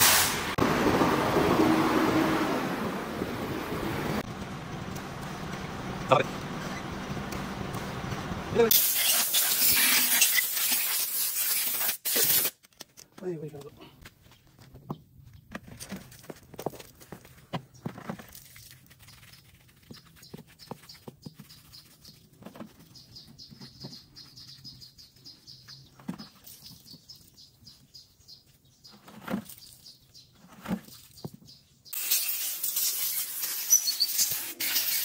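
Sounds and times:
compressed air blow gun hissing: 0.0s - 0.6s, 8.7s - 12.5s.

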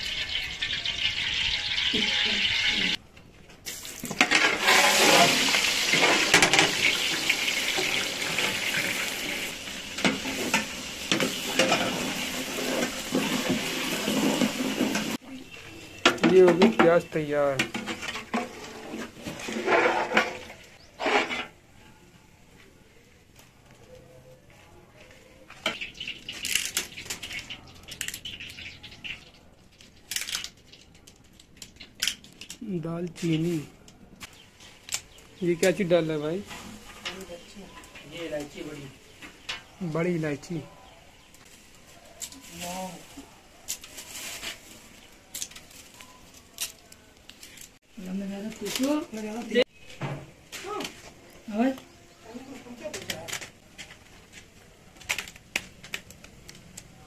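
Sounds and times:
onions sizzling in hot oil: 0.0s - 3.0s, 3.6s - 18.2s, 25.6s - 29.4s
dry spices crackling: 22.8s - 57.0s.

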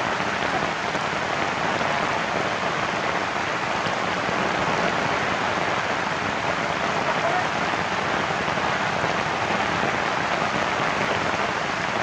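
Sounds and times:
heavy rain falling: 0.0s - 12.0s.

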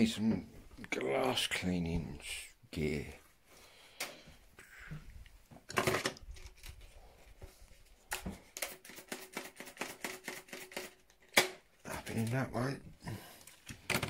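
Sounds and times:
clattering of items handled: 5.5s - 8.9s, 13.3s - 14.0s.

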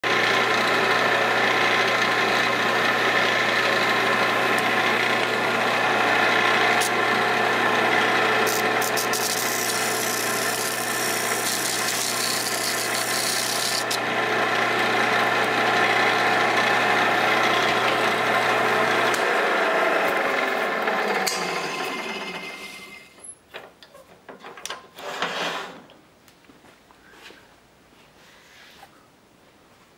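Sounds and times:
wood lathe motor hum: 0.0s - 23.2s
sandpaper rasping on spinning wood: 8.5s - 14.0s.

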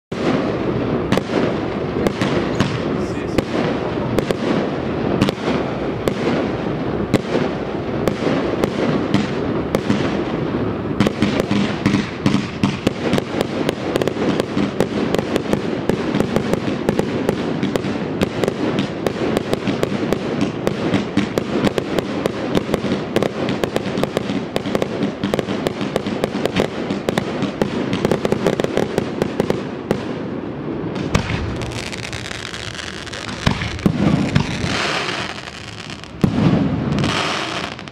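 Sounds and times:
fireworks bangs and crackling: 0.1s - 37.9s.

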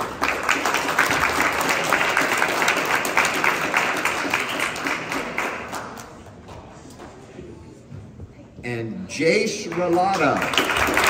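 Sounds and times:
audience clapping: 0.0s - 7.2s, 9.5s - 11.0s.

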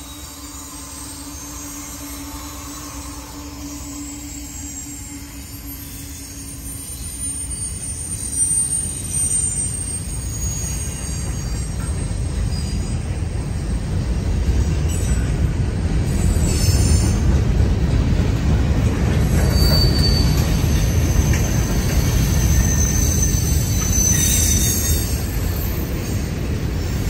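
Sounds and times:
high-pitched wheel squeal: 0.0s - 13.2s, 19.3s - 27.0s
steel wheels rumbling on rail: 0.0s - 27.0s.

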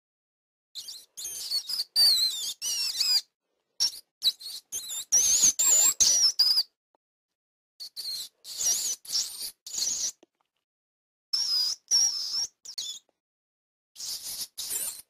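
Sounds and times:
rat squeaking: 0.8s - 6.7s, 7.8s - 10.2s, 11.4s - 13.1s, 14.0s - 15.0s.

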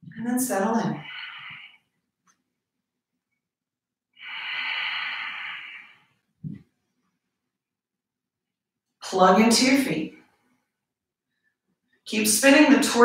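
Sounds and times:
person exhaling: 4.2s - 6.1s.

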